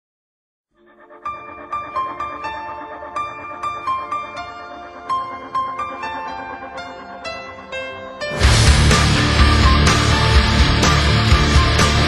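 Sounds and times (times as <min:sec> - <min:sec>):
melody of high held notes: 0:00.8 - 0:12.0
low bass: 0:08.4 - 0:12.0.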